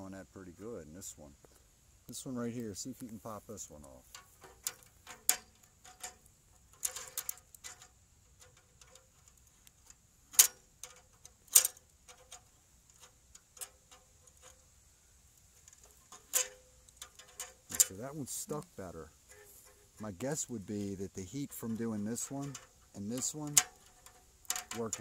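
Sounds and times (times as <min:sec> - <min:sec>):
pliers clicking on metal tubing: 0:04.1 - 0:14.6, 0:21.4 - 0:25.0.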